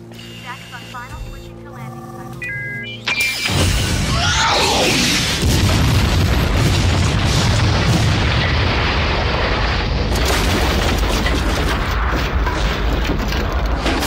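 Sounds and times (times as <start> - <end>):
explosion rumble: 3.5 - 14.0.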